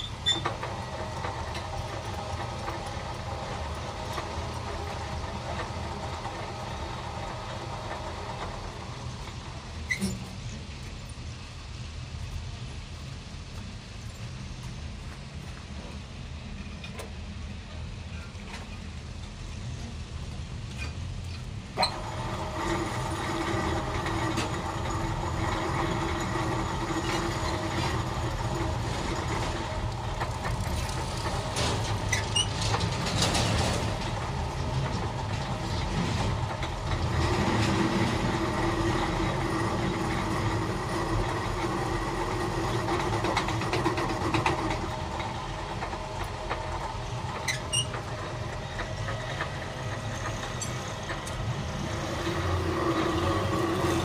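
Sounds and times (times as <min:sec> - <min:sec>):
lathe whine: 0:00.0 - 0:10.0, 0:21.8 - 0:54.0
lathe humming: 0:21.8 - 0:54.0.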